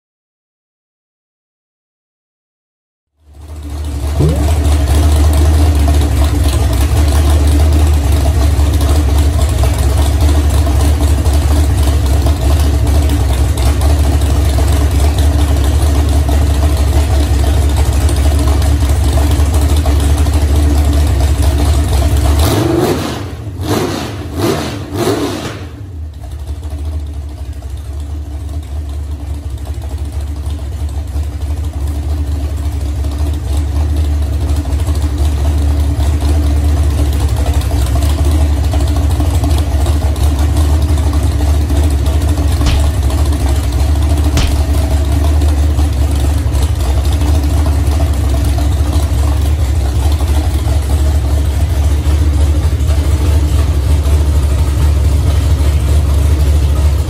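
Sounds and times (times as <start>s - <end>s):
engine running and revving: 22.2s - 25.8s.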